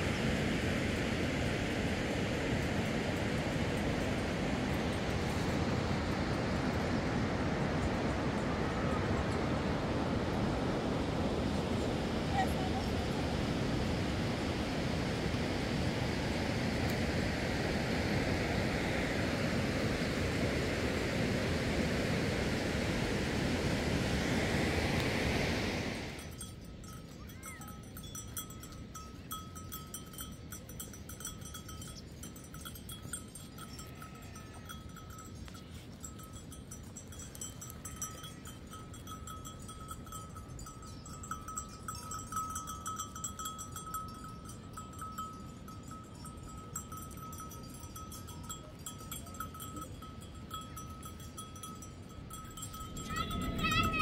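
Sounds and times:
livestock bells clinking: 2.5 - 7.3, 26.2 - 54.0.

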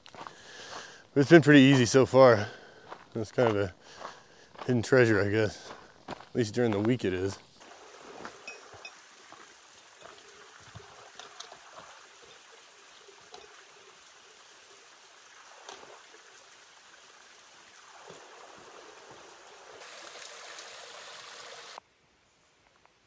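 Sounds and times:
flowing water rushing: 7.6 - 21.8.

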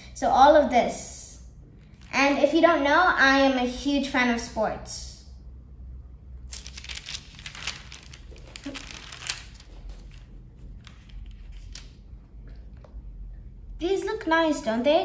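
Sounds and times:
album page rustling and crinkling: 6.5 - 12.0.

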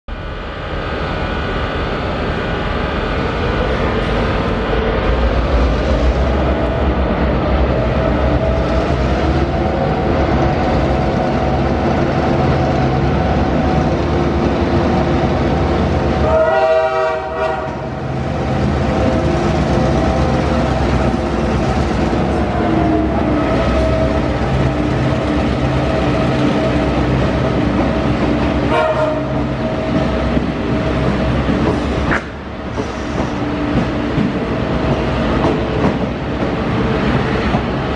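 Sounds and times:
diesel locomotives running under power: 0.1 - 37.9
locomotive horn: 16.2 - 18.0, 28.6 - 29.4.

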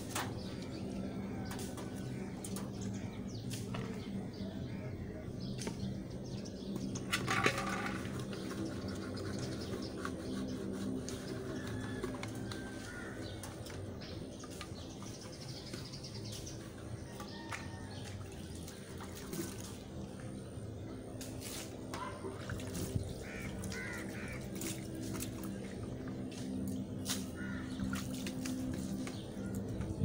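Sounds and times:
faint birds calling: 0.0 - 30.0
water poured and splashed: 17.6 - 20.2, 21.2 - 26.0.

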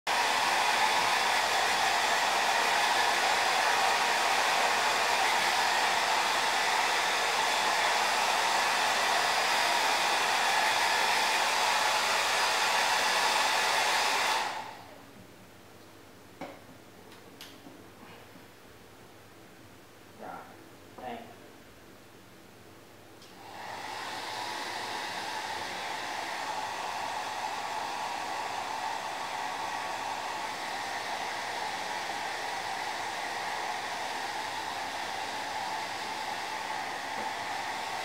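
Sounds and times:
hair dryer running: 0.1 - 14.9, 23.3 - 38.0.

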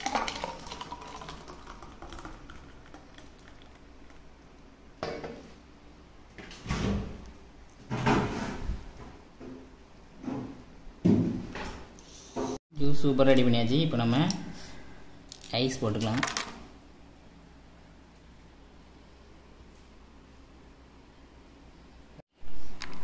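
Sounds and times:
juice pouring into glass: 0.0 - 4.2
knocks and clunks on countertop: 5.0 - 5.4, 10.2 - 11.8.

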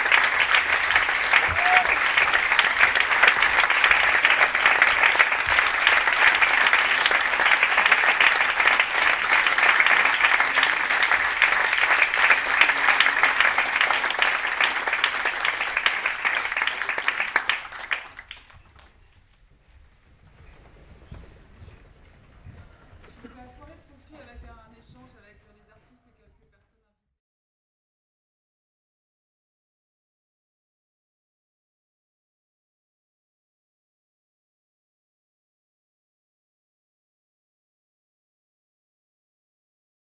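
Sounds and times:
audience applauding: 0.0 - 19.1.

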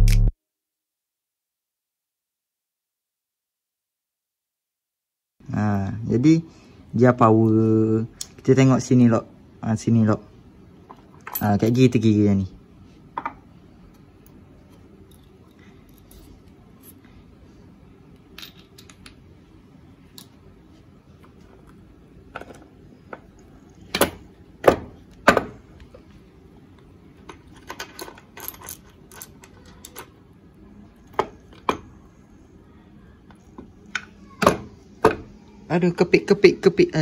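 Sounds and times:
metal parts clinking: 15.0 - 17.0, 18.3 - 19.1, 27.3 - 30.1.

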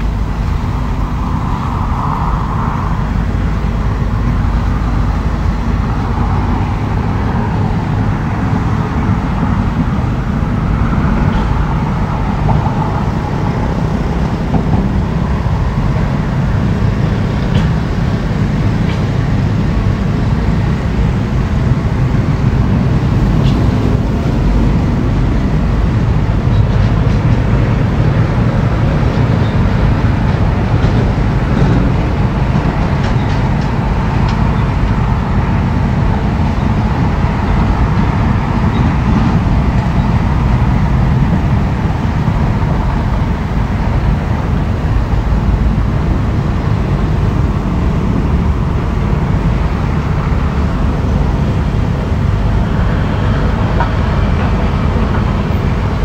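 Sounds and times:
diesel engine rumbling: 0.0 - 56.0.

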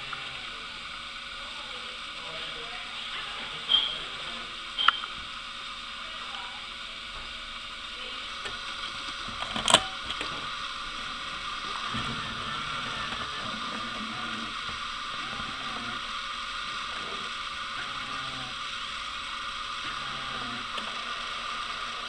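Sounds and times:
tape mechanism whirring: 8.4 - 22.0.

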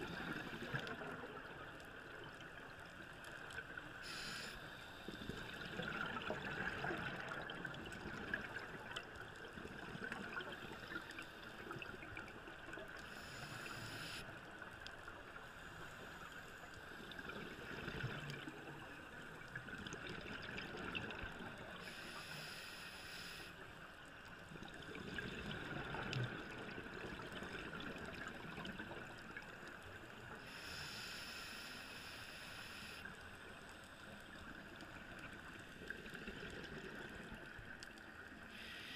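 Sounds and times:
muffled water hiss: 0.0 - 38.9
exhaled bubbles: 5.2 - 9.0
diver breathing through regulator: 30.5 - 33.1, 38.5 - 38.9.

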